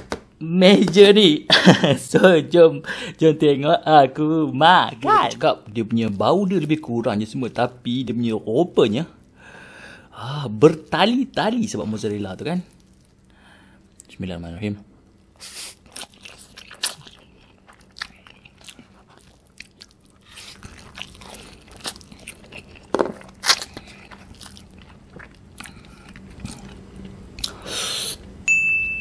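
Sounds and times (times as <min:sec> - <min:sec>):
chewing: 0:15.4 - 0:27.6.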